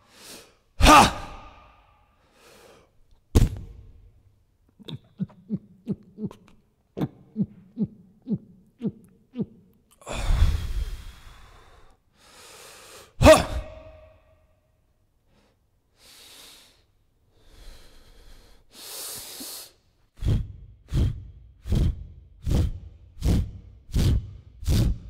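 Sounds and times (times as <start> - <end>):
man grunting: 0.8 - 1.7, 13.2 - 14.1
man shouting: 0.8 - 1.7, 13.2 - 14.2
man gasping: 7.2 - 14.1, 15.3 - 25.0
man exhaling sharply: 10.0 - 13.8, 16.0 - 19.8.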